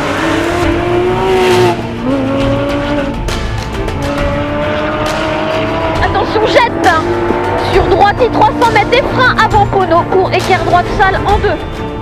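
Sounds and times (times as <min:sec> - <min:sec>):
car engine accelerating past: 0:00.0 - 0:03.2.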